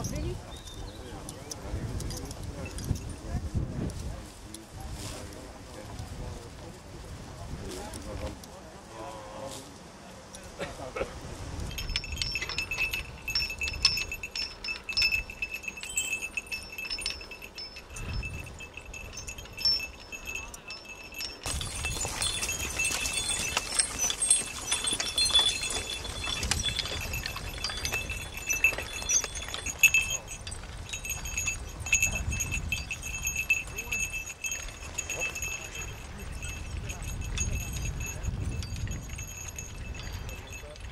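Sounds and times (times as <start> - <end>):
horse harness chains jingling: 0.0 - 6.3, 11.5 - 40.9
low thuds of movement: 11.2 - 40.9.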